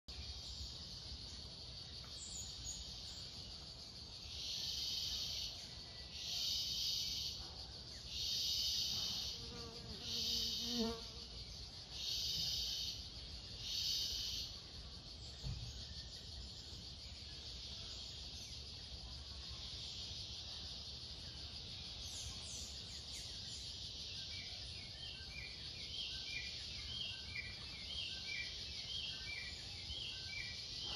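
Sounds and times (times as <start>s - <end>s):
high-pitched insect drone: 2.4s - 7.5s, 8.1s - 11.3s, 11.9s - 16.4s
pulsing insect buzzes: 8.7s - 11.3s.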